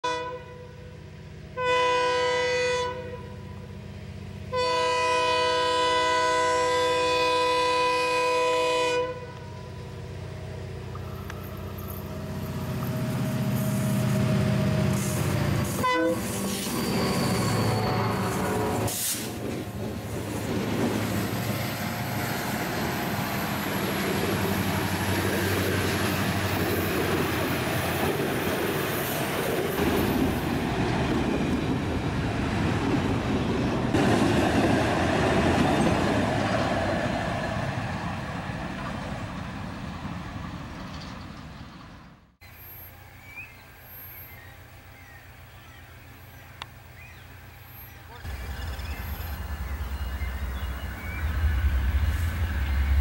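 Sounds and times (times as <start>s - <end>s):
locomotive air horn: 0.0s - 3.6s, 4.5s - 9.7s, 14.9s - 19.3s
locomotive engine passing: 3.1s - 53.0s.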